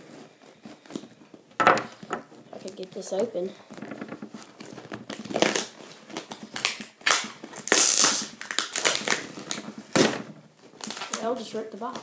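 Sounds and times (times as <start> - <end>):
cardboard and tape crunching: 2.6 - 12.0.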